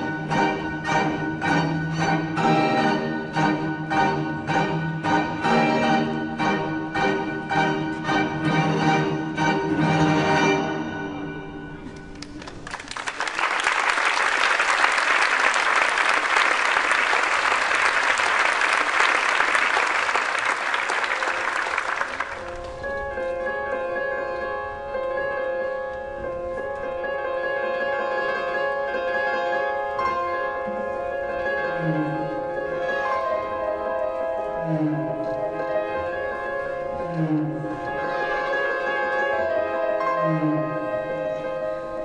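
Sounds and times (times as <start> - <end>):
string ensemble playing: 0.0 - 12.3, 27.9 - 42.0
audience applauding: 12.1 - 22.8.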